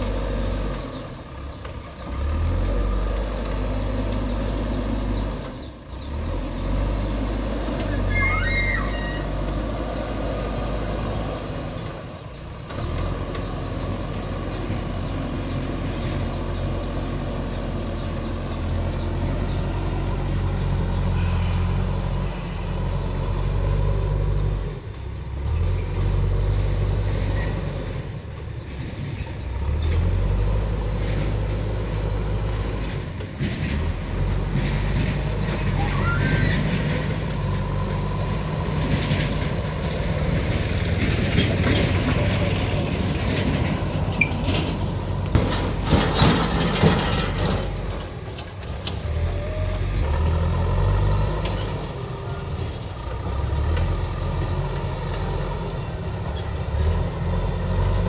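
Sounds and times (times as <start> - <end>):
diesel engines running: 0.0 - 58.0
loud knocks and rattles: 38.6 - 49.1.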